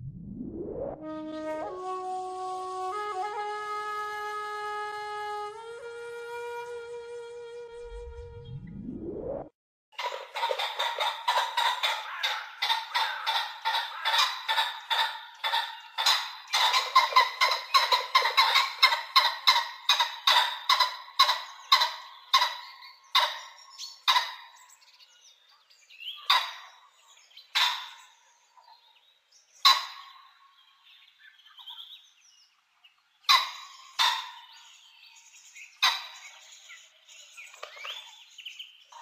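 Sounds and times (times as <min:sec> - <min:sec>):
pheasant calling: 0:10.0 - 0:24.7, 0:26.0 - 0:28.9, 0:29.6 - 0:30.4, 0:33.2 - 0:36.8.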